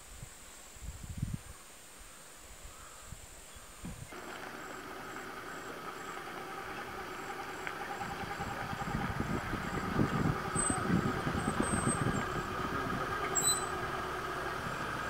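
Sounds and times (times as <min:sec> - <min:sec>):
vehicle engine running: 0:04.1 - 0:15.0.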